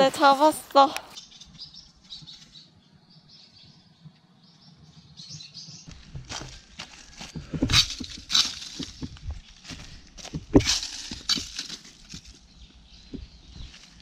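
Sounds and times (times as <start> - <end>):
dry leaves crunching and rustling: 5.9 - 12.6, 13.5 - 14.0.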